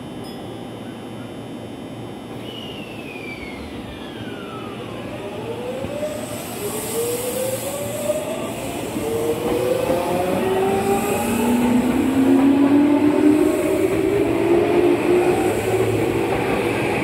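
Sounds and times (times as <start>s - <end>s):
electric train inverter whine: 0.0s - 17.0s
train wheels on rails: 2.3s - 17.0s.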